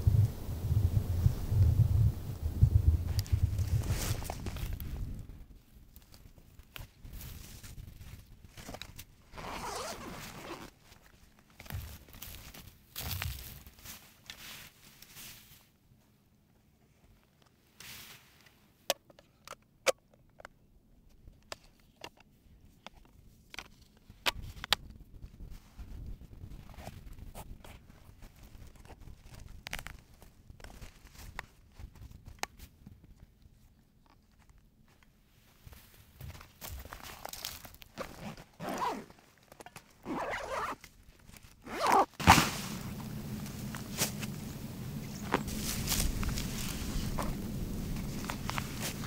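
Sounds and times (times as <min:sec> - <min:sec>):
steady low background noise: 0:00.0 - 0:06.0, 0:42.2 - 0:49.0
clothing and gear rustling: 0:03.2 - 0:05.0, 0:06.8 - 0:16.1, 0:34.9 - 0:49.0
backpack zipper being pulled: 0:09.4 - 0:10.7, 0:38.2 - 0:39.1, 0:40.0 - 0:40.8, 0:41.6 - 0:44.3.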